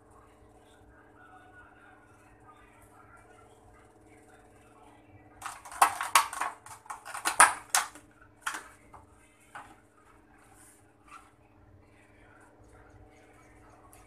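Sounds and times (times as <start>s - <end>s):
faint low hum: 0.0s - 14.0s
plastic food pack crackling: 5.4s - 8.7s.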